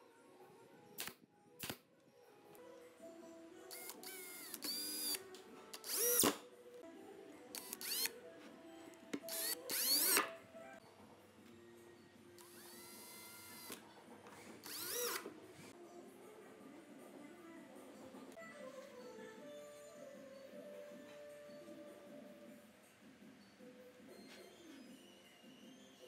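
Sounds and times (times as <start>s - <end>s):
cordless drill drilling into wood: 3.7s - 5.2s, 5.8s - 6.4s, 7.6s - 8.1s, 9.2s - 10.3s, 12.4s - 13.8s, 14.6s - 15.3s.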